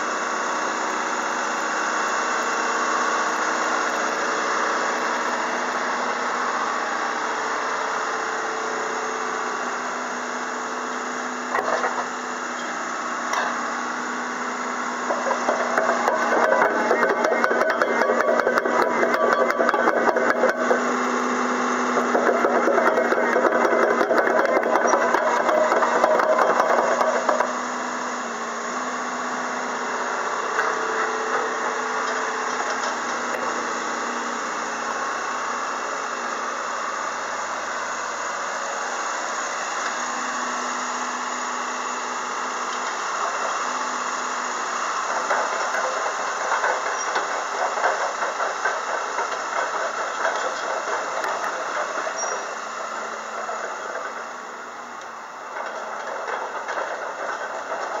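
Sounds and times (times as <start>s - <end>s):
diesel engine running: 0.0s - 58.0s
steel tracks squealing and clanking: 15.0s - 21.1s, 21.8s - 27.6s, 44.8s - 58.0s.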